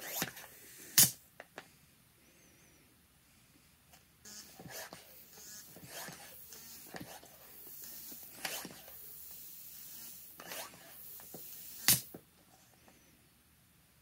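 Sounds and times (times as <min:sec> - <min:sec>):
air hissing: 0:04.7 - 0:12.1
sharp click: 0:11.9 - 0:12.1.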